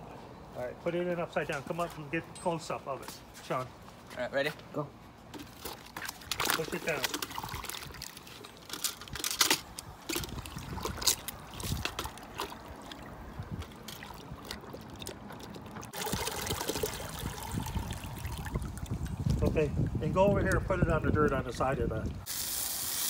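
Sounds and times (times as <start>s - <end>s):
water splashing in a plastic bucket: 5.4s - 22.3s
water trickling into a bucket: 5.4s - 23.0s.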